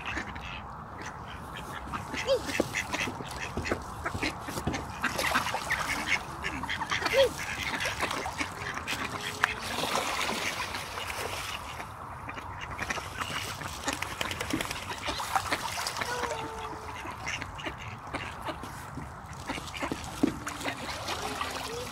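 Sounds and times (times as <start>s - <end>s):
ducks quacking: 0.0s - 21.9s
small splashes in water: 4.2s - 11.9s, 12.8s - 21.9s.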